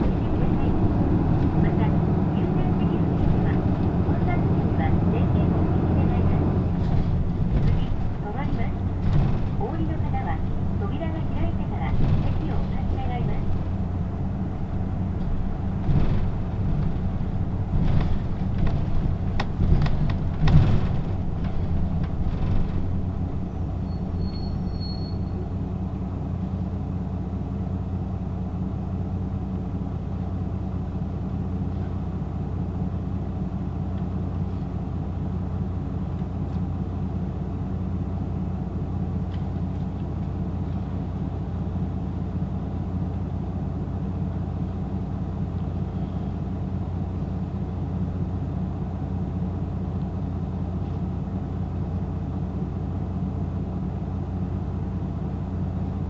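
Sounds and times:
bus engine idling: 0:00.0 - 0:56.0
knocks and clunks: 0:05.8 - 0:23.8.

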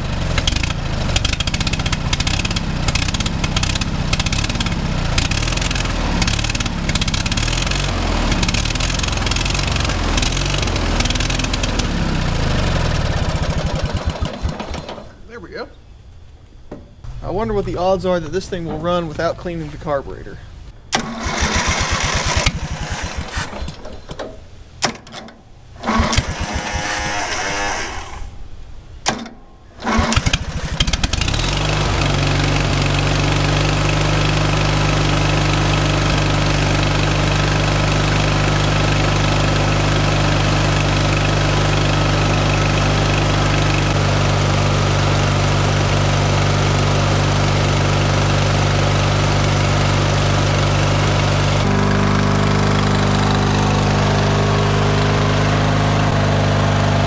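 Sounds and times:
small engine running steadily: 0:00.0 - 0:15.0, 0:21.0 - 0:24.2, 0:25.8 - 0:28.3, 0:29.8 - 0:57.0
small engine cranking: 0:21.0 - 0:24.2, 0:25.8 - 0:28.3, 0:29.8 - 0:33.0.

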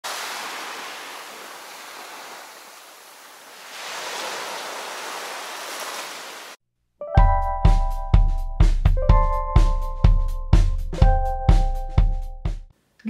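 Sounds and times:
small waves on sandy beach: 0:00.0 - 0:06.6.

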